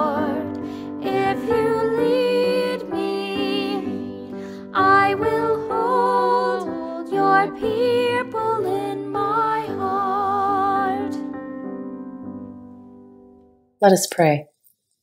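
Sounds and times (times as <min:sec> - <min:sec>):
woman singing a hymn: 0:00.0 - 0:11.3.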